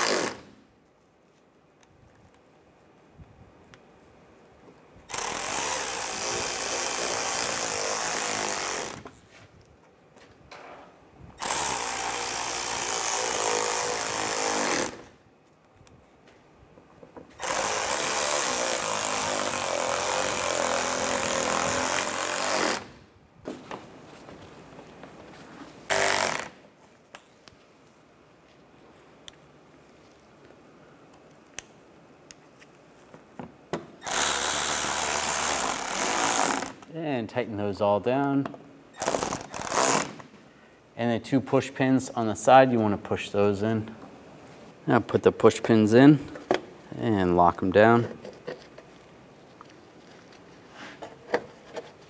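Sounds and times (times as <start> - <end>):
cordless ratchet running screws: 17.4 - 22.9, 25.9 - 26.5, 34.0 - 36.8, 39.0 - 40.1.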